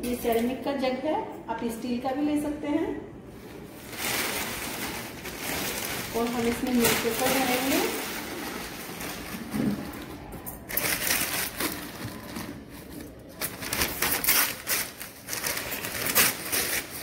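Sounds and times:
newspaper crumpling and rustling: 3.4s - 17.0s.

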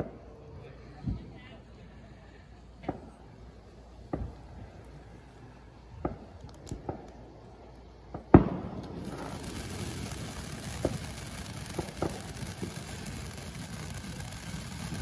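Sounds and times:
small pops and crackles: 6.1s - 7.2s, 8.1s - 15.0s
firework fountain hissing: 7.9s - 15.0s.

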